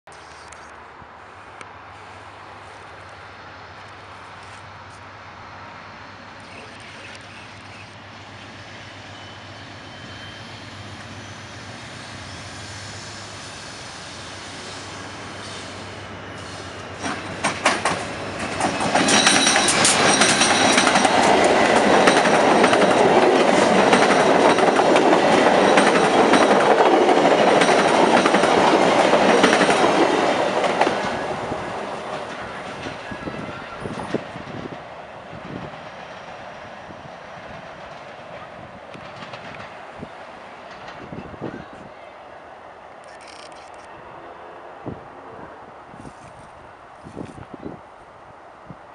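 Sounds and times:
passenger train passing: 0.2 - 48.9
wheels clicking on rail joints: 17.0 - 31.3
high-pitched ring from rails: 19.0 - 21.0.

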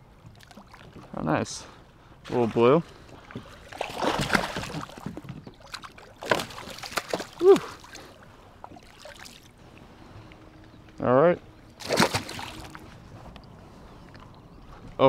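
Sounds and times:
fish splashing at water surface: 3.7 - 8.0, 11.8 - 12.8.

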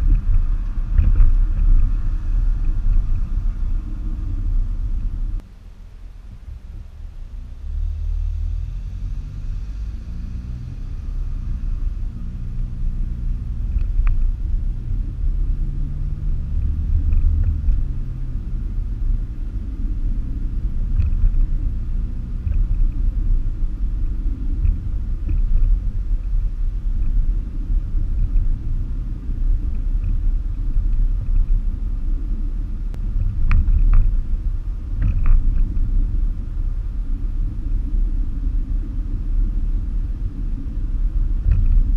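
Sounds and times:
car engine and road rumble: 0.0 - 41.9.

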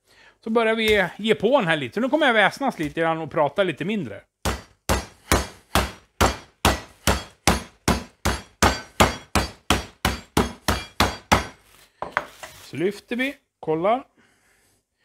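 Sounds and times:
meat mallet pounding meat: 4.4 - 11.6.

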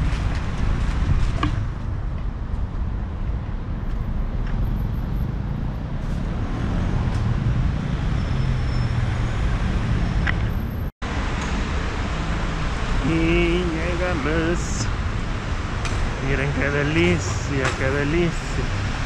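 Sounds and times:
cars driving past: 3.2 - 19.0.

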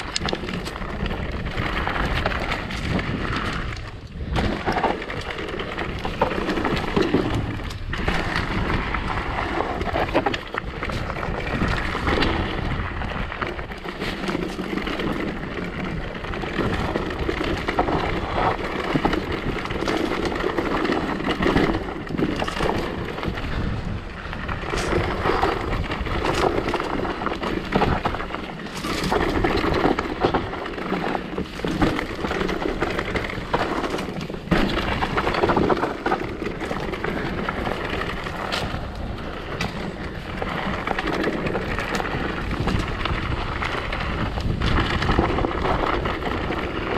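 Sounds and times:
wind rushing on microphone: 0.0 - 14.0, 21.3 - 30.6, 34.5 - 46.9
bike rattling and knocking: 0.0 - 46.9.

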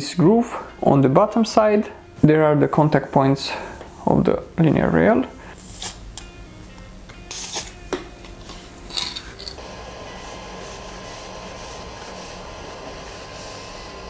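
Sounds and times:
aerosol spray hiss: 9.6 - 14.0
steady hum with high tone: 9.6 - 14.0.

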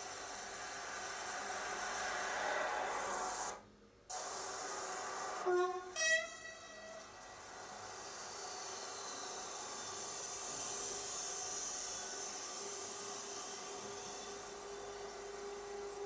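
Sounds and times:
train horn blasts: 5.4 - 7.1.

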